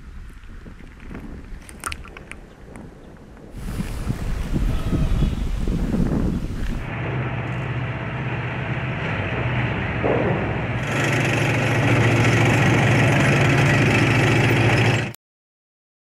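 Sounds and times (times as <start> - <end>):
low engine-like drone: 6.5 - 15.2.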